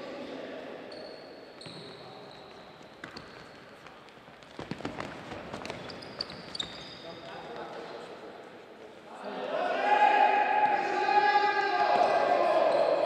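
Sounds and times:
shoes squeaking on wooden floor: 0.9 - 7.7.

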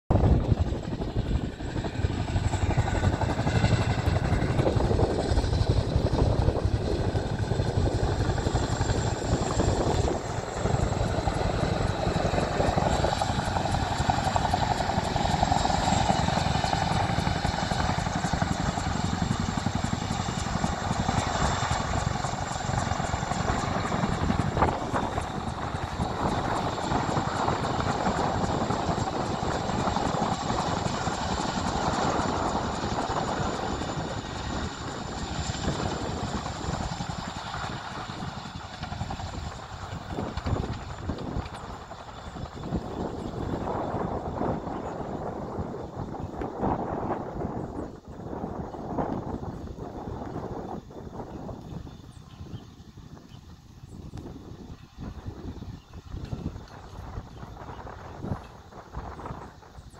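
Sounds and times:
helicopter rotors thudding: 0.1 - 51.6
helicopter engine rumble: 0.1 - 59.9.

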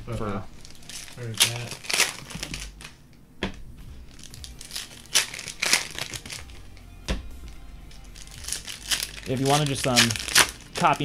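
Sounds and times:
foil wrappers crinkling and tearing: 0.1 - 3.0, 4.0 - 6.6, 7.9 - 11.0.

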